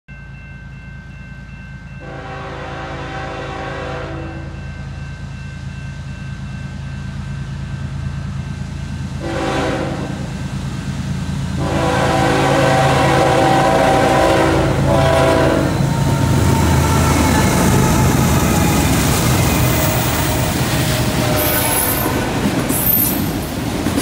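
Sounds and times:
high steady ringing bell: 0.1 - 2.4, 4.2 - 8.7
locomotive air horn: 2.0 - 4.6, 9.2 - 10.3, 11.6 - 19.0, 20.0 - 22.3.

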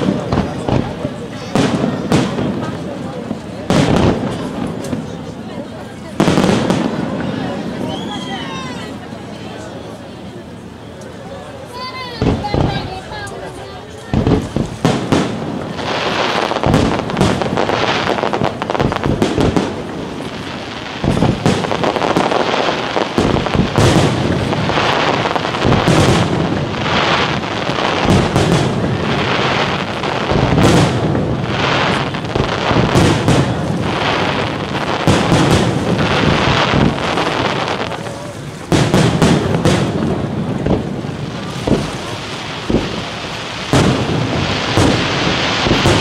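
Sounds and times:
fireworks crackle: 0.0 - 46.0
fireworks shells bursting: 14.1 - 46.0.

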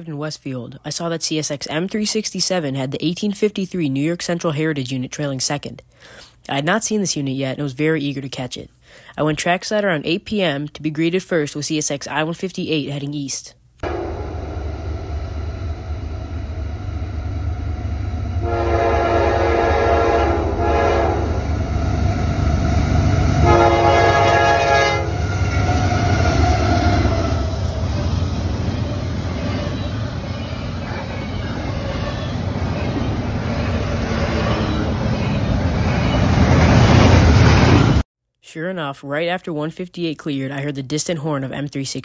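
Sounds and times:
train horn: 13.8 - 15.0, 18.4 - 21.4, 23.4 - 27.6.

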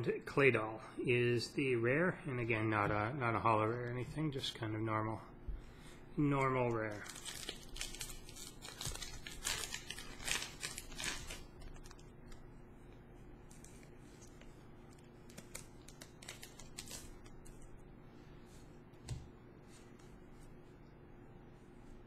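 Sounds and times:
foil wrapper crinkling and tearing: 6.9 - 12.4, 13.5 - 17.6.

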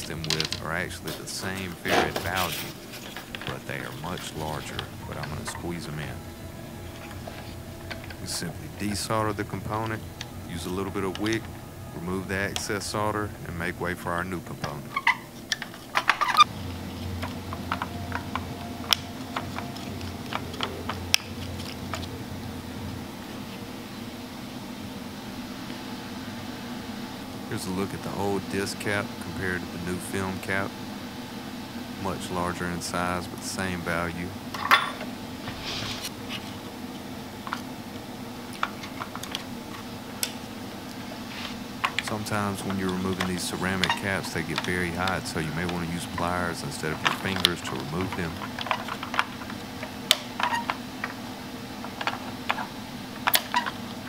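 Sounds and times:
soft hiss: 0.0 - 15.6
steady low hum: 0.0 - 54.0.

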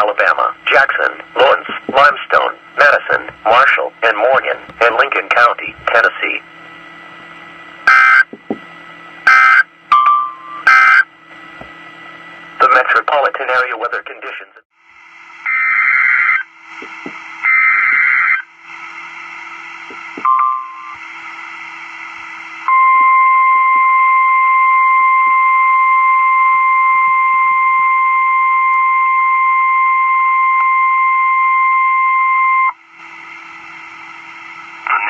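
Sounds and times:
radio background hiss: 0.0 - 6.5, 12.6 - 18.1, 33.0 - 35.0
steady warning alarm tone: 7.8 - 8.5, 9.2 - 11.2, 15.3 - 34.9
short beep: 20.2 - 21.0, 22.7 - 32.8.

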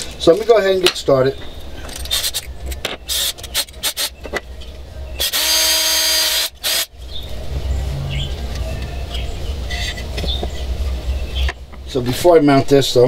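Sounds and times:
cordless drill running: 5.2 - 6.9.

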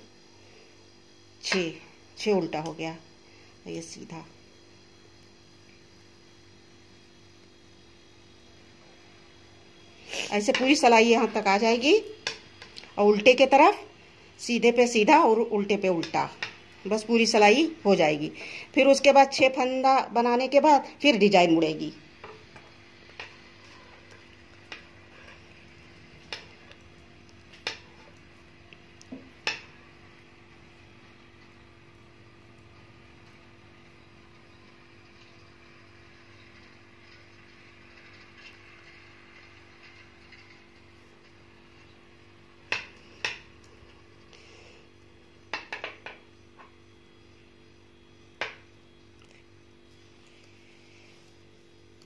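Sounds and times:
faint hum: 0.0 - 52.0.

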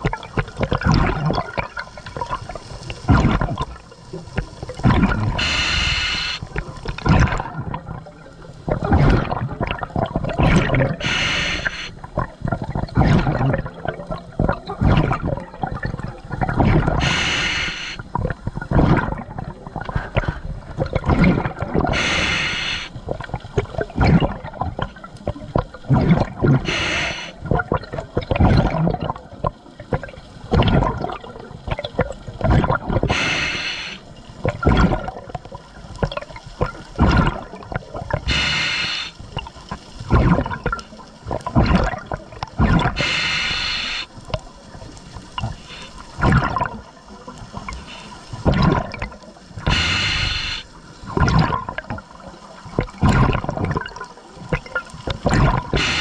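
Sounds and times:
exhaust bubbles rushing: 4.7 - 5.6, 8.7 - 11.1, 18.2 - 22.1, 27.5 - 31.3, 36.1 - 38.4, 40.1 - 43.1, 45.4 - 46.9, 48.4 - 49.9, 51.1 - 56.0
regulator inhale hiss: 5.3 - 6.5, 11.0 - 12.0, 17.0 - 18.0, 21.9 - 23.0, 26.6 - 27.4, 33.1 - 34.1, 38.3 - 39.3, 43.0 - 44.2, 45.5 - 46.1, 47.7 - 48.4, 49.7 - 50.8, 55.7 - 56.0.

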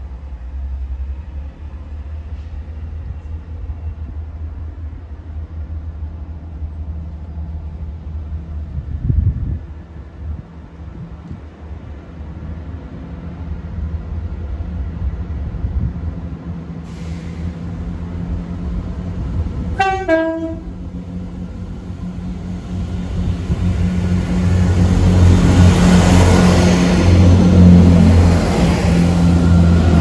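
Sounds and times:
diesel train engine rumble: 0.0 - 30.0
two-tone train horn: 19.8 - 20.8.

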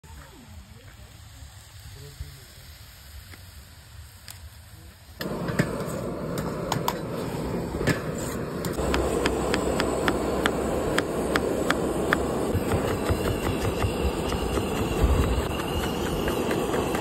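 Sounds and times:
wok on gas stove: 0.0 - 17.0
knife chopping on cutting board: 8.8 - 17.0.

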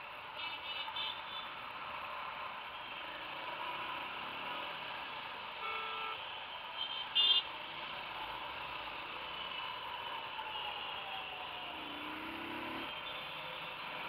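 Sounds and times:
motorbike riding in traffic: 0.0 - 14.0
high horn beep: 5.6 - 6.2
vehicle horn: 5.6 - 6.2, 6.8 - 7.4.

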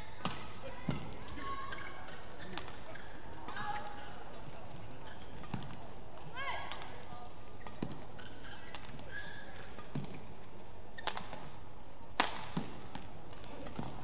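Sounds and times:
court shoes squeaking: 0.0 - 14.0
racket hitting shuttlecock: 0.2 - 4.4, 11.0 - 11.5, 12.1 - 14.0.

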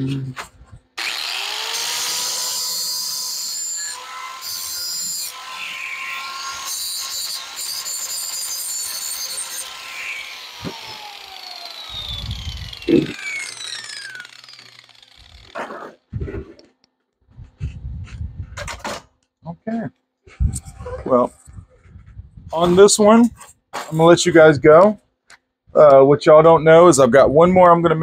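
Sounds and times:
angle grinder grinding metal: 1.0 - 16.6.

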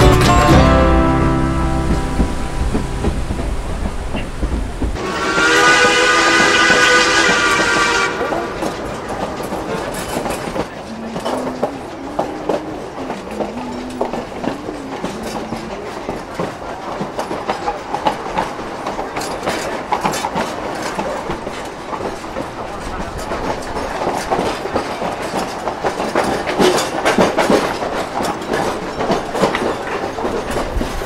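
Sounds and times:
train wheels clattering on rails: 0.0 - 31.0
steam train whistle: 5.0 - 8.9.

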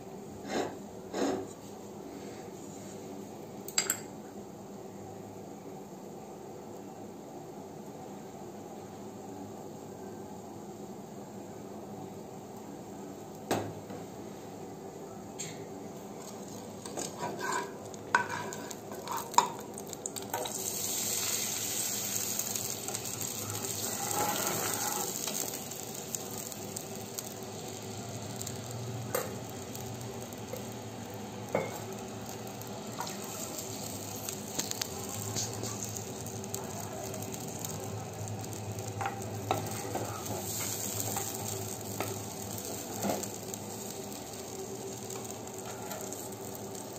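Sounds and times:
milky mixture hissing and sizzling: 15.4 - 46.9
ladle scraping and tapping pan: 16.9 - 19.5.

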